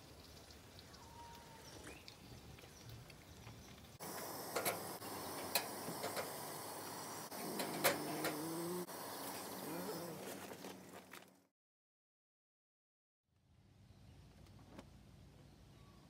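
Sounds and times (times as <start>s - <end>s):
sharp metallic clicks: 4.0s - 6.4s
gas stove burner hissing: 4.0s - 10.2s.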